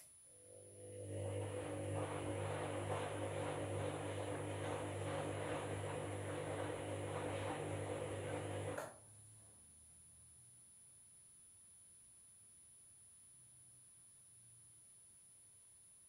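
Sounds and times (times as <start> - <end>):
washing machine motor hum: 0.4 - 8.9
wet laundry swishing in drum: 1.2 - 8.8.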